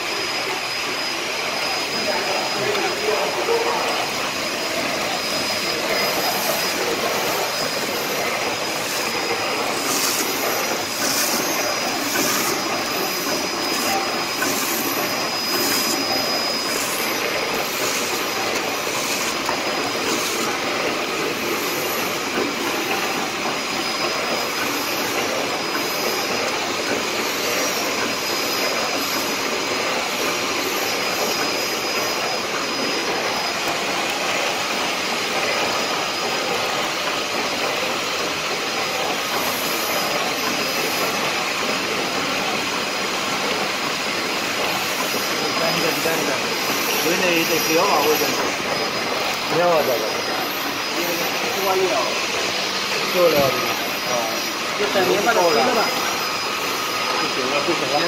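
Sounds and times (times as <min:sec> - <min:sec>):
high machine whine: 0:00.0 - 0:58.0
packing machine running: 0:00.0 - 0:58.0.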